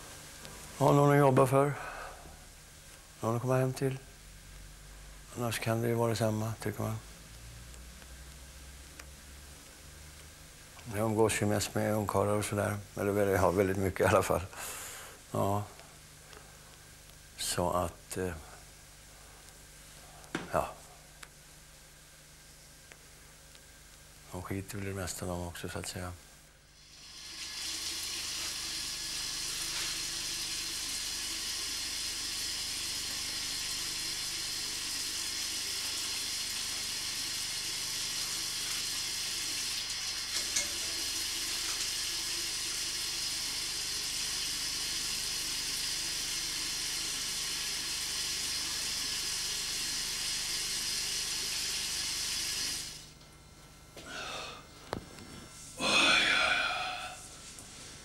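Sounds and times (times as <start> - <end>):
tap water running into washbasin: 26.8 - 53.0.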